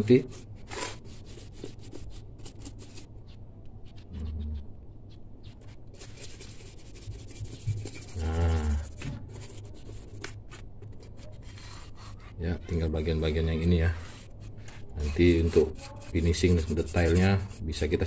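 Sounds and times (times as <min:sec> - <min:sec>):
scraper rubbing paint off metal: 0:05.6 - 0:10.3, 0:13.9 - 0:18.0.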